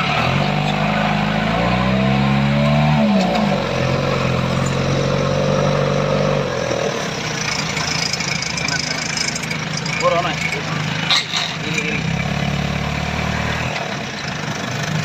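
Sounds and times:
engine revving under load: 0.0s - 15.0s.

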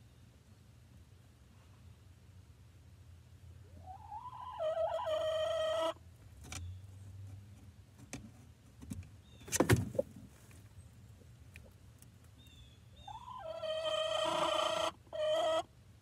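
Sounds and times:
hen squawking: 13.1s - 15.6s.

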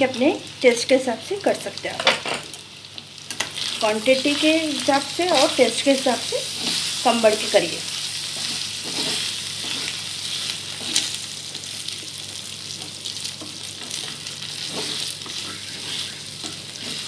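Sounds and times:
meat sizzling in hot oil: 0.0s - 17.0s
spatula scraping pan: 8.3s - 11.2s, 13.8s - 17.0s.

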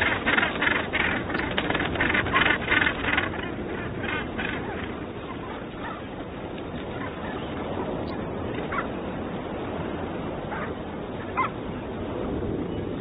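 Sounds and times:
gannets calling: 0.0s - 9.1s, 10.4s - 11.7s.

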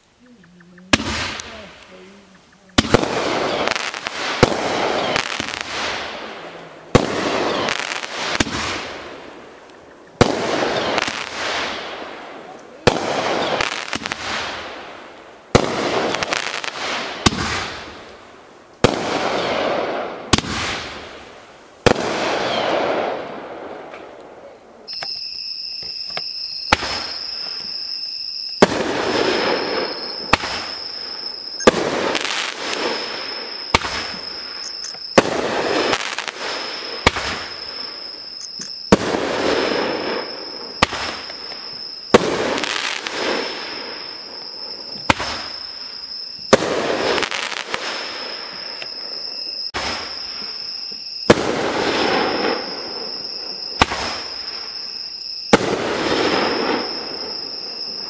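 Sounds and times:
firework shots banging: 0.9s - 1.6s, 2.8s - 12.2s, 15.5s - 18.0s, 18.8s - 21.2s, 26.7s - 27.8s, 28.6s - 37.6s, 38.4s - 44.1s, 45.0s - 45.5s, 53.8s - 54.4s
firework hiss: 0.9s - 58.0s.

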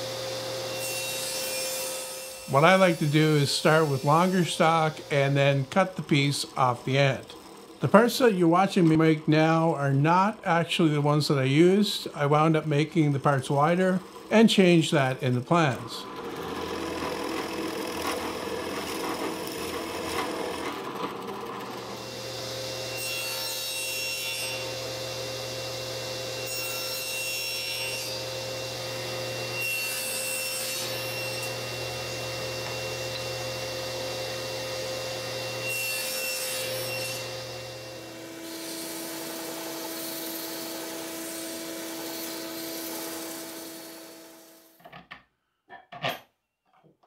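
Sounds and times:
table saw cutting plywood: 0.0s - 44.9s
belt sander sanding: 0.6s - 22.1s.

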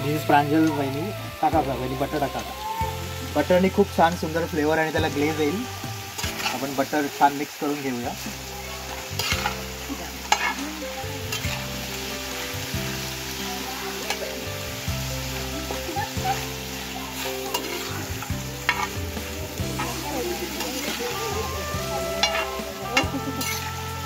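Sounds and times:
chicken sizzling in butter: 0.0s - 24.0s
spatula clicking and scraping pan: 6.2s - 6.6s, 8.9s - 10.7s, 11.3s - 11.6s, 17.2s - 19.0s, 22.2s - 23.7s.

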